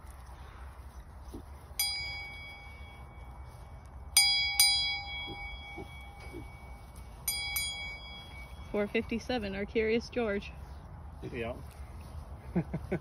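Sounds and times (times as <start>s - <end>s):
sheep bell clanking: 1.7s - 9.4s.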